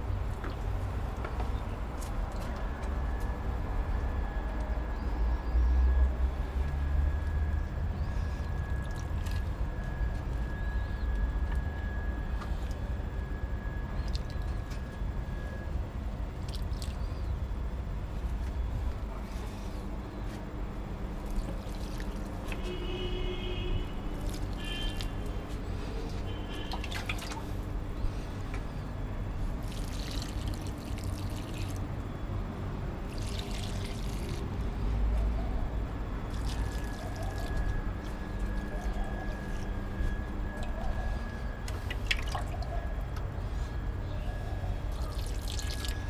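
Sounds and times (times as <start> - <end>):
steady low rumble: 0.0 - 22.8, 23.4 - 45.1
water pouring onto plants: 16.4 - 17.1, 21.2 - 22.7, 24.1 - 25.3, 26.0 - 27.5, 29.6 - 31.8, 33.0 - 34.6, 36.3 - 39.0, 41.7 - 42.7, 44.9 - 46.0.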